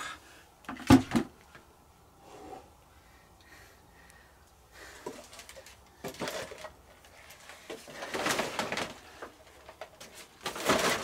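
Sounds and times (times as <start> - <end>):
plastic crinkling and rustling: 4.9 - 11.0.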